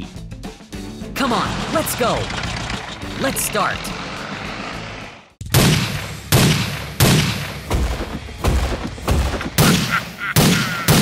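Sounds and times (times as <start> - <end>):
heavy gunshots: 5.5 - 11.0.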